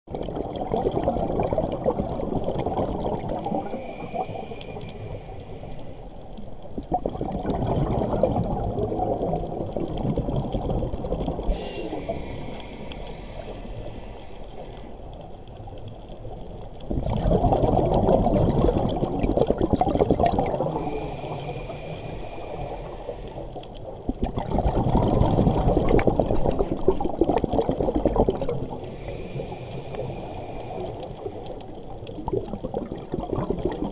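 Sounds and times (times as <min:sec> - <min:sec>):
diver exhaling bubbles underwater: 0:00.1 - 0:04.8, 0:06.8 - 0:13.3, 0:16.9 - 0:23.0, 0:24.1 - 0:31.4, 0:32.2 - 0:33.9
regulator inhalation hiss: 0:03.5 - 0:06.2, 0:11.5 - 0:15.0, 0:20.8 - 0:23.5, 0:28.8 - 0:31.4.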